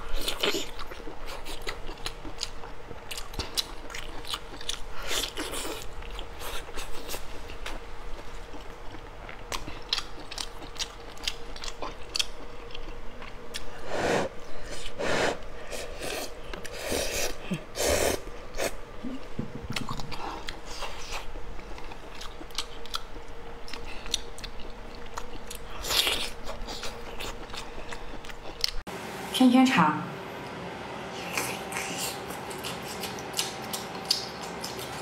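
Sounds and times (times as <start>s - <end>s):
wet chewing and biting: 0.1s - 13.7s, 19.7s - 28.8s, 31.2s - 35.0s.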